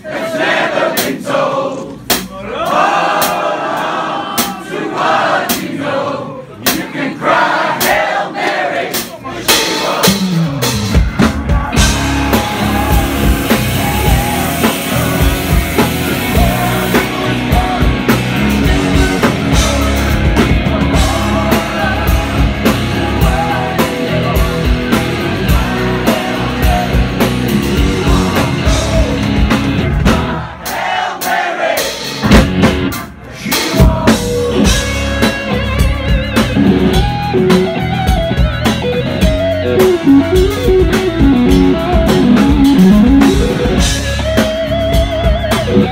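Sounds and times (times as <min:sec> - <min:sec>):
live rock band playing: 0:08.9 - 0:45.9
electric guitar: 0:10.0 - 0:30.4, 0:33.8 - 0:45.9
male lead vocal: 0:11.2 - 0:30.4, 0:33.3 - 0:35.3.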